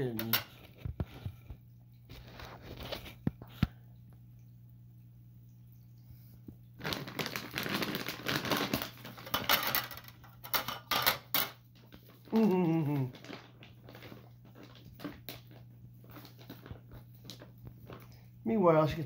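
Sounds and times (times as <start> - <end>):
plastic bag rustling: 6.8 - 19.0.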